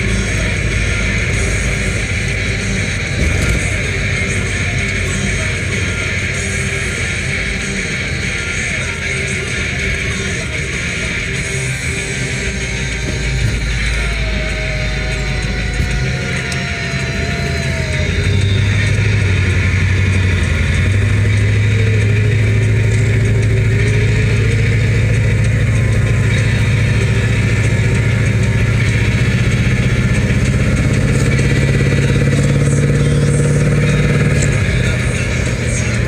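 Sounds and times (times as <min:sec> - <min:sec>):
car engine droning: 0:00.0 - 0:36.0.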